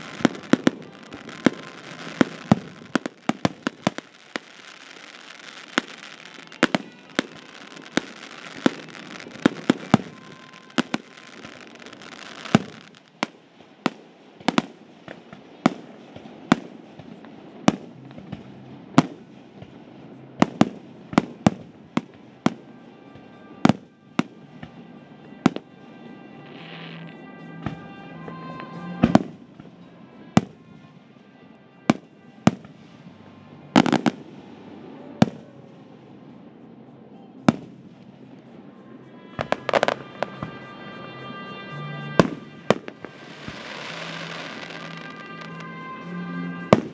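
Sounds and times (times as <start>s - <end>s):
fireworks shells booming: 0.0s - 22.6s, 41.9s - 46.9s
fireworks crackle: 0.0s - 46.9s.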